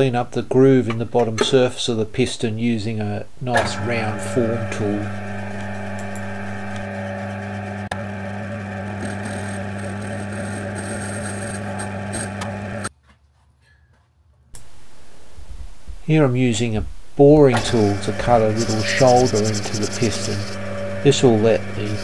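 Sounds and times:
metal lathe humming: 0:02.8 - 0:12.9, 0:17.2 - 0:22.0
click: 0:05.6 - 0:06.9.

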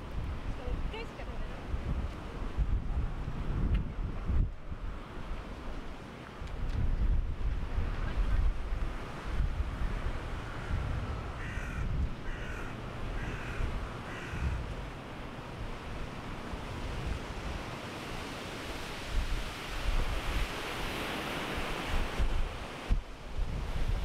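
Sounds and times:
surf washing on shore: 0:00.0 - 0:24.0
wind rumbling on microphone: 0:00.0 - 0:24.0
bird calling: 0:11.4 - 0:14.6.

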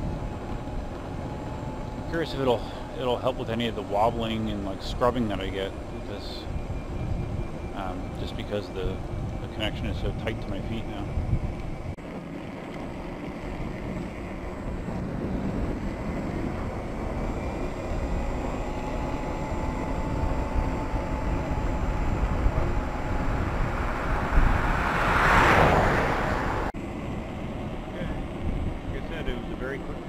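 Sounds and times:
faint steady tone: 0:00.0 - 0:12.0
road rumble: 0:00.0 - 0:30.0
wind on microphone: 0:00.0 - 0:30.0
rushing swell: 0:21.8 - 0:26.8.

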